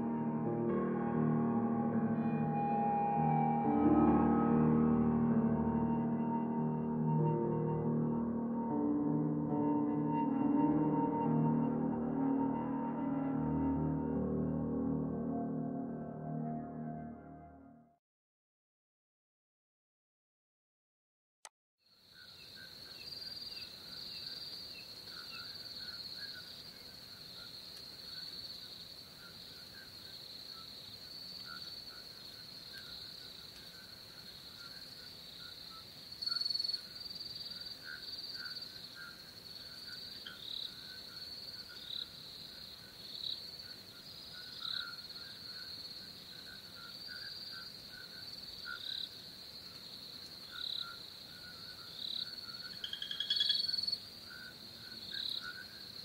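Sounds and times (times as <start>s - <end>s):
crickets trilling: 21.9s - 56.0s
lower-pitched chirps: 52.7s - 53.9s.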